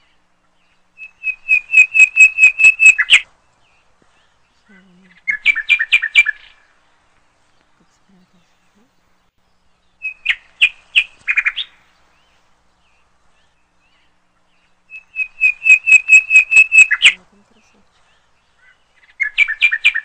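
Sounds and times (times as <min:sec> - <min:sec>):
songbird chirping: 0:00.0 - 0:20.0.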